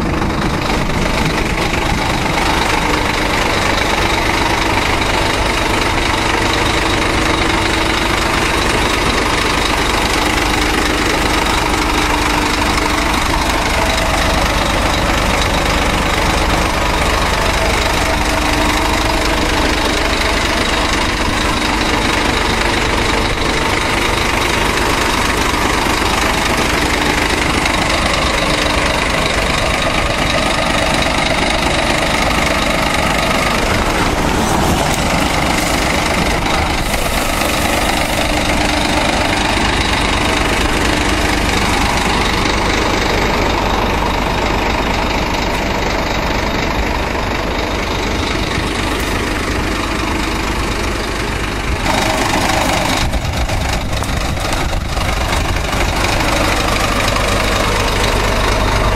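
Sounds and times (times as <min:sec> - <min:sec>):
truck engine noise: 0:00.0 - 0:58.9
tyre and road rumble: 0:00.0 - 0:58.9.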